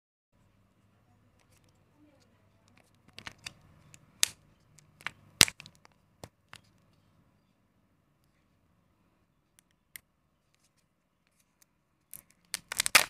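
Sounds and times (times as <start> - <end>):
plastic capsule clicking and crackling: 1.4 - 1.8, 2.6 - 6.8, 11.2 - 13.0.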